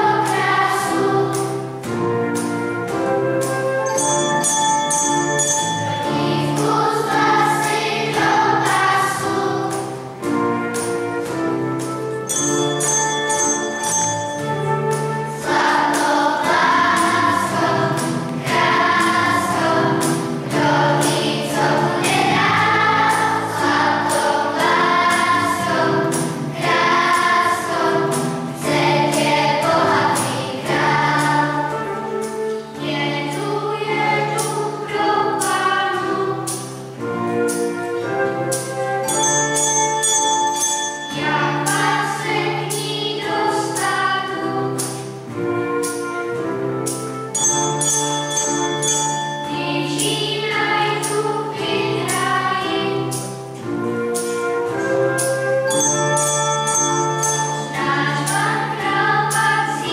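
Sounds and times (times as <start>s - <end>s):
children's choir singing: 0.0s - 59.9s
piano: 0.0s - 59.9s
flute: 1.9s - 5.4s, 10.0s - 13.7s, 31.6s - 32.8s, 37.0s - 41.0s, 45.3s - 49.5s, 53.7s - 57.7s.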